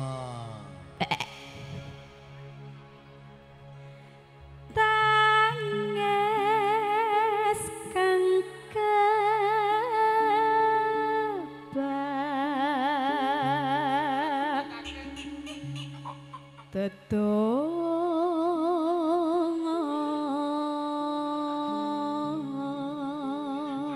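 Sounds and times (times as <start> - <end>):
held backing chords: 0.0 - 23.9
woman singing with vibrato: 4.7 - 15.8, 16.6 - 23.9.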